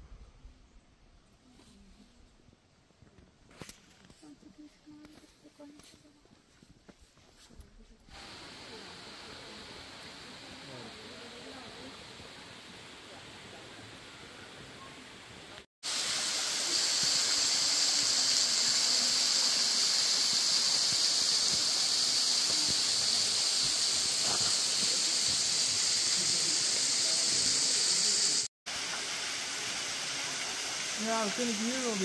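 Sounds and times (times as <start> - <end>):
rushing water: 15.8 - 32.0.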